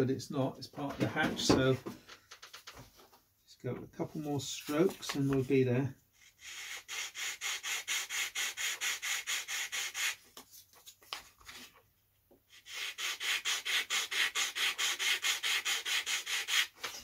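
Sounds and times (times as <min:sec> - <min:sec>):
wood being hand sanded: 0:06.4 - 0:10.2, 0:12.6 - 0:16.7.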